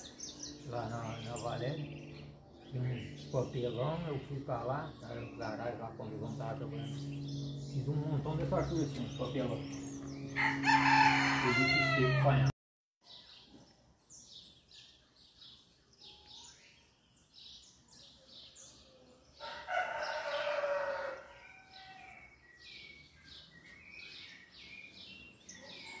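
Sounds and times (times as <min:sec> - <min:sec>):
small birds chirping: 0:00.0 - 0:26.0
rooster crowing: 0:10.3 - 0:12.5, 0:19.4 - 0:22.4.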